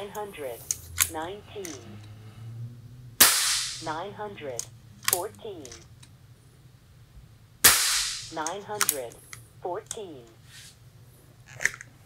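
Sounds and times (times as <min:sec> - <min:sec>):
air rifle shot crack: 0:03.2 - 0:03.9, 0:07.6 - 0:08.4.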